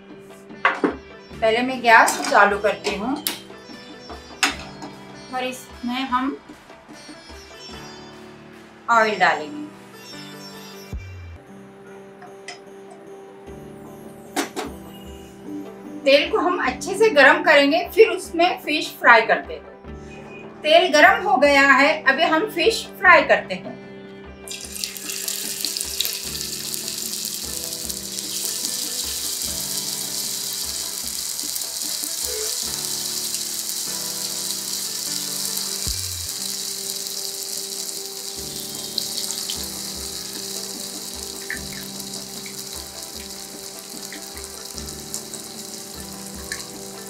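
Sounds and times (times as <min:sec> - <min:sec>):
fish sizzling in hot oil: 0:24.5 - 0:47.0.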